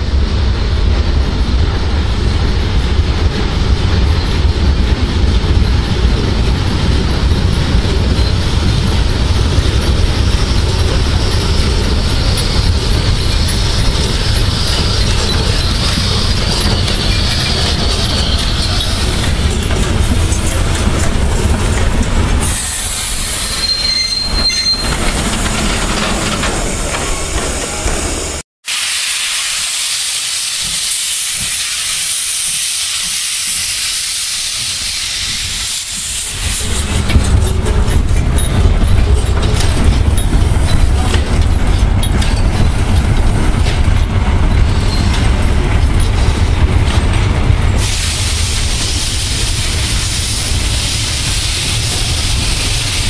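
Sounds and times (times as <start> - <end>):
steam locomotive hissing: 0.0 - 53.0
carriages rolling: 3.9 - 28.0, 36.6 - 48.6
high wheel squeal: 7.3 - 20.7, 22.4 - 28.4.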